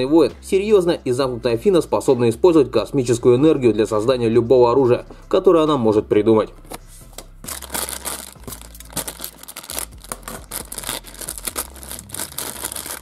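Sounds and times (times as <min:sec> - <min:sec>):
plastic packet crinkling: 0:07.5 - 0:13.0.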